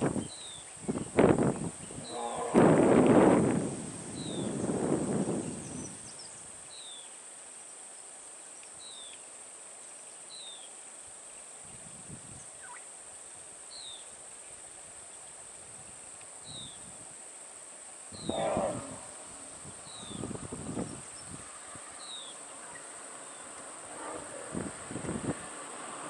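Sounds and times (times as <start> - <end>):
high insect drone: 0.0 - 26.0
bird falling call: 2.0 - 3.2.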